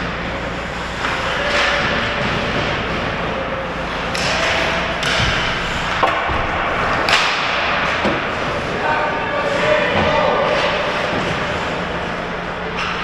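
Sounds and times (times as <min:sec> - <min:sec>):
hockey sticks knocking puck: 0:00.9 - 0:08.8, 0:09.5 - 0:11.7.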